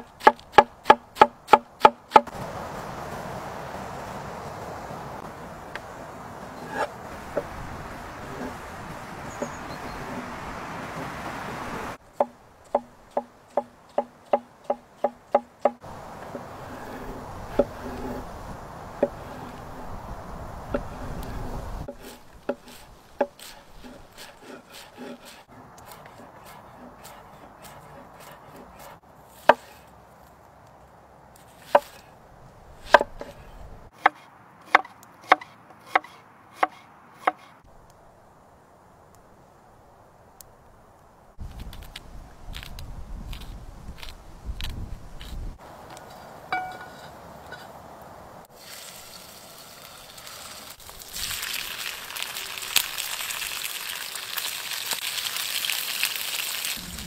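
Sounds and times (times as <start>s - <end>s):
knife chopping on wooden board: 0.0s - 2.3s, 31.6s - 32.0s, 34.0s - 37.5s.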